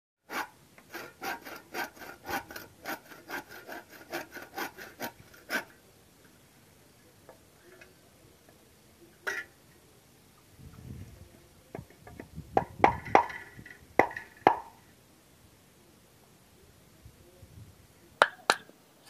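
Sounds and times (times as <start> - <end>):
saw rasping through bamboo: 0.2 - 5.8.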